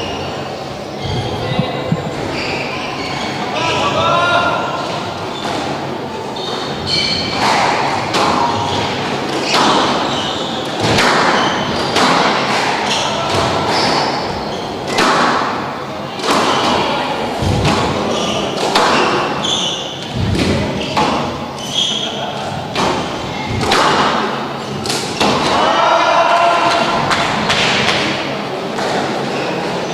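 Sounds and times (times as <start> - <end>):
shoes squeaking on court floor: 0.0 - 3.8, 6.3 - 7.8, 8.5 - 12.0, 18.1 - 23.6, 28.8 - 29.9.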